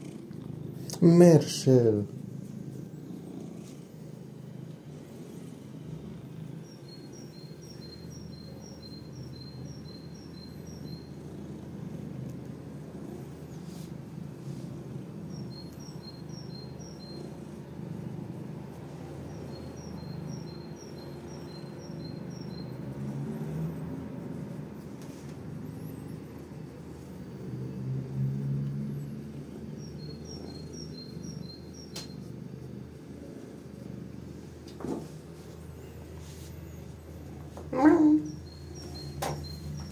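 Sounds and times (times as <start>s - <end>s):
low outdoor rumble: 0.0s - 21.9s.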